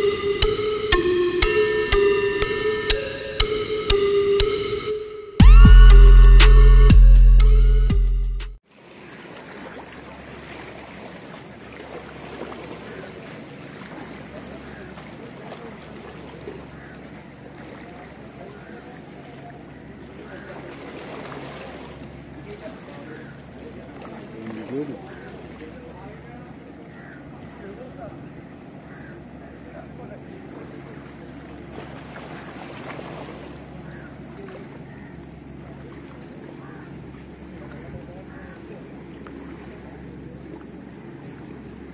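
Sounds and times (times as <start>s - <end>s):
wind: 0.0s - 7.8s, 8.6s - 41.9s
distant boat engine hum: 0.0s - 7.9s, 8.6s - 41.9s
water lapping: 8.6s - 41.9s.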